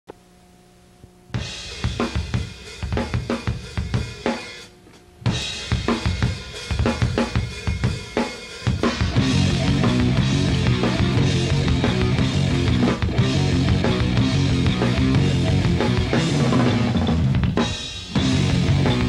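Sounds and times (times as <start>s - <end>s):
faint steady hum: 0.1s - 5.6s
rock drum kit playing: 1.3s - 19.0s.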